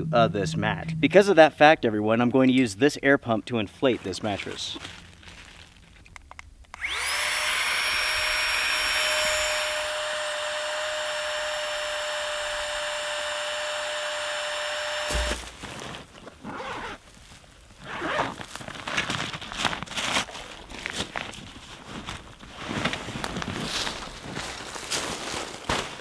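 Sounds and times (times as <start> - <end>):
rustling handling noises: 3.8 - 6.4, 15.4 - 26.0
electric air pump whining: 6.7 - 15.7.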